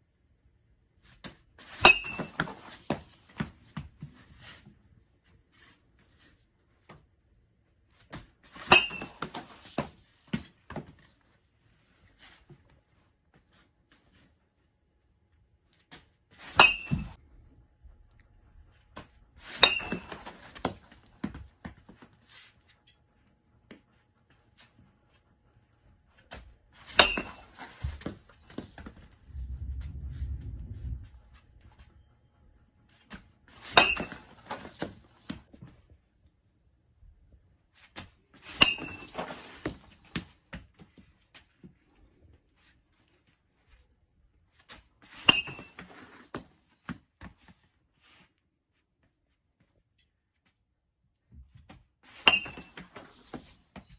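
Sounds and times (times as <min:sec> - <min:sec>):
ball knocking on net and floor: 0:01.2 - 0:04.1, 0:08.1 - 0:11.0, 0:16.5 - 0:17.2, 0:19.0 - 0:22.0, 0:26.3 - 0:29.1, 0:33.1 - 0:35.6, 0:38.0 - 0:40.7, 0:45.2 - 0:47.3, 0:51.6 - 0:53.9
low rumble: 0:29.0 - 0:32.2.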